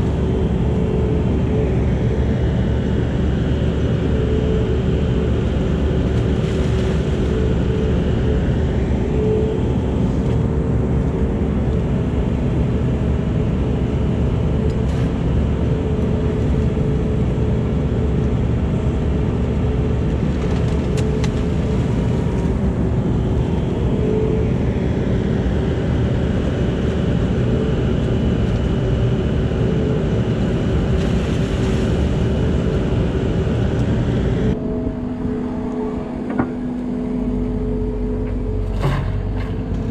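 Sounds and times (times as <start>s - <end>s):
diesel excavator engine running: 0.0s - 39.9s
high-pitched whine: 0.0s - 39.9s.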